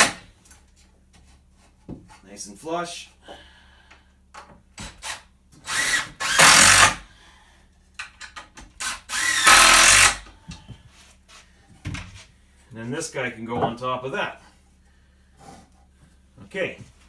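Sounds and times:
cordless drill driving screws: 4.8s - 7.0s, 8.8s - 10.2s.

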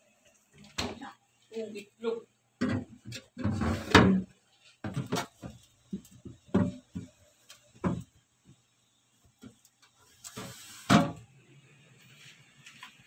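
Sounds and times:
rustle of handling vegetables: 9.9s - 10.9s, 11.9s - 13.0s.

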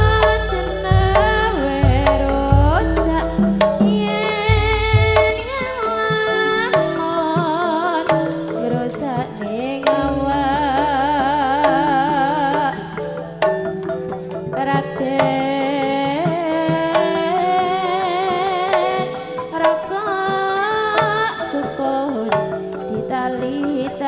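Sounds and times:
sharp drum strokes: 0.0s - 17.7s
metallophone tones: 0.0s - 24.0s
singing with wide vibrato: 0.0s - 24.0s.

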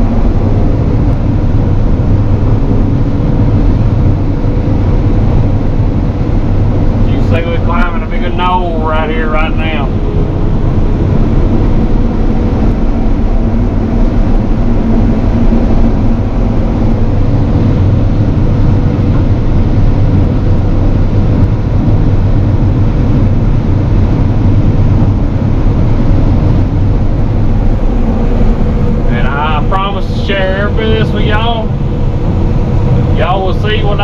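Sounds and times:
combine harvester mechanical drone: 0.0s - 34.0s
low hum: 0.0s - 34.0s.

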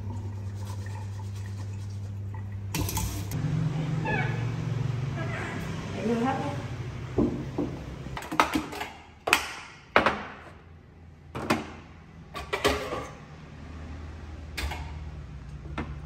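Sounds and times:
metal cookware clanking: 12.3s - 13.2s.

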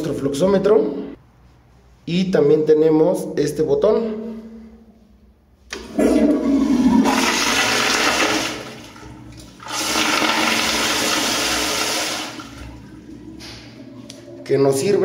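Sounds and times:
toilet flushing: 5.7s - 15.0s.

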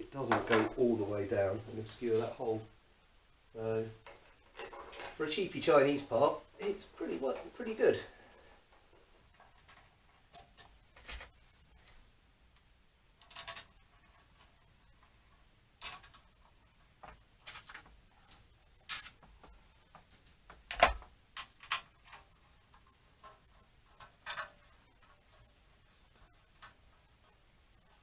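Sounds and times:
metal bolts and tool clinking: 4.0s - 5.4s.

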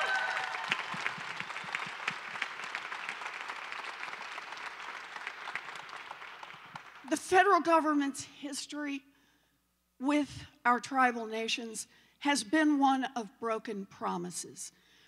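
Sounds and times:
audience applause: 0.0s - 7.1s.

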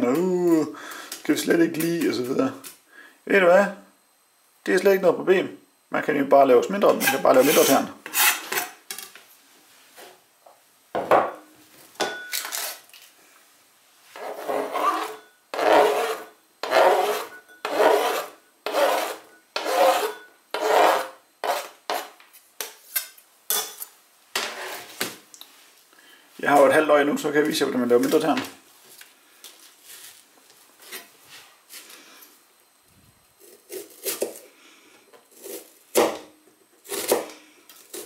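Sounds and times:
knife scraping cutting board: 6.9s - 8.8s, 14.2s - 22.2s, 24.4s - 25.0s.

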